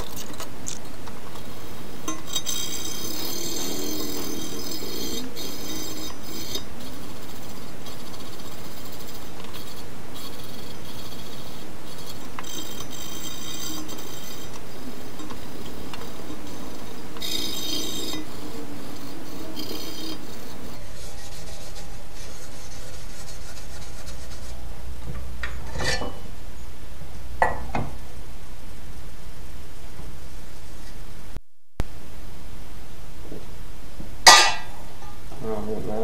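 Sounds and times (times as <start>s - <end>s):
pad scrubbing steel: 1.3s - 24.6s.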